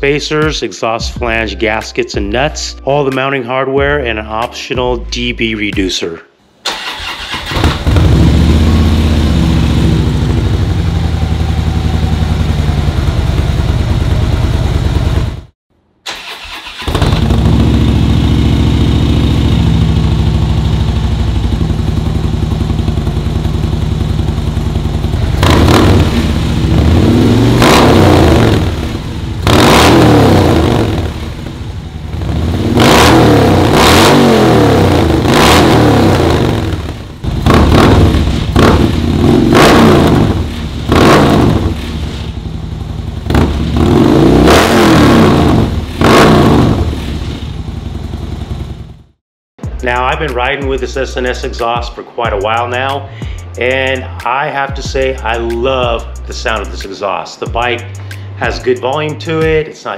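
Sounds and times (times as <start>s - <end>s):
motorcycle idling: 6.9s - 15.5s, 16.5s - 29.5s, 30.2s - 32.8s, 36.2s - 44.2s, 47.4s - 49.1s.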